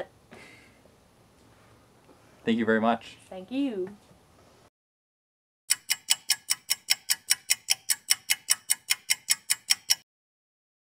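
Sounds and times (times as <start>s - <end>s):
clock-like ticking: 5.7s - 10.1s.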